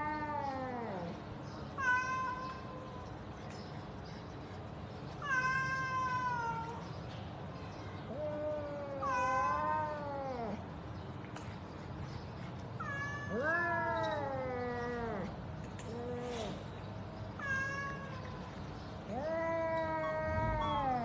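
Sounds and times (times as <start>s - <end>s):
cat meowing: 8.1s - 10.6s, 12.8s - 15.3s, 17.4s - 18.5s, 19.1s - 21.0s.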